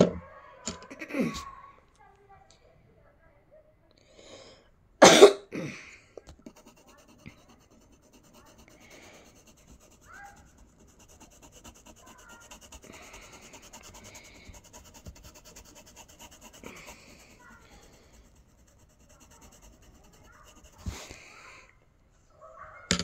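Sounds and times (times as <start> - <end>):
pencil scratching on paper: 6.3 - 21.6.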